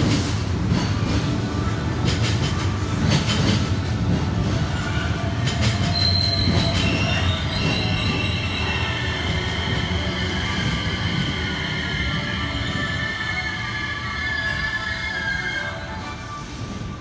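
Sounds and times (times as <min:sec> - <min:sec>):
train wheel clacks: 0:00.0 - 0:08.6
train rumble: 0:00.0 - 0:17.0
high-pitched brake squeal: 0:04.8 - 0:17.0.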